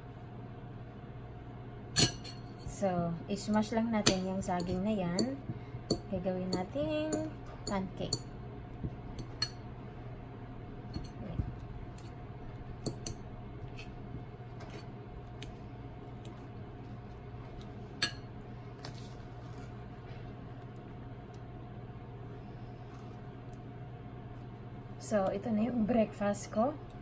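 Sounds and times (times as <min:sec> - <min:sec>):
steady low hum: 0:00.0 - 0:27.0
fork clinking against bowl: 0:02.0 - 0:02.7, 0:09.2 - 0:09.6, 0:10.9 - 0:11.2, 0:12.8 - 0:13.9.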